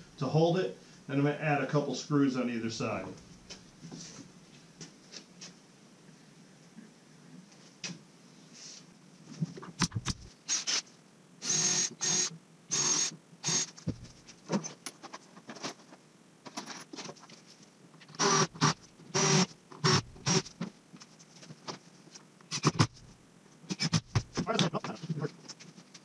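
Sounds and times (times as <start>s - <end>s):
cordless drill driving screws: 10.5s - 10.8s, 11.4s - 13.8s, 18.2s - 20.4s.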